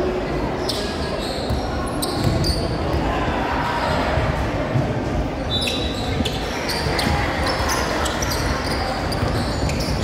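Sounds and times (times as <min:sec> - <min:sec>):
sneaker squeaks: 0:00.5 - 0:03.0, 0:05.4 - 0:10.0.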